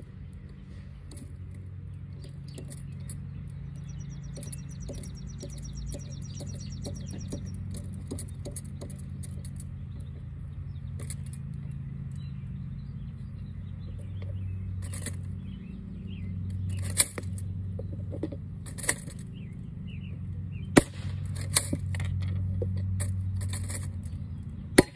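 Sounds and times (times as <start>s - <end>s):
steady low hum: 0.0s - 24.9s
sharp pops of blank shells: 20.8s - 21.7s.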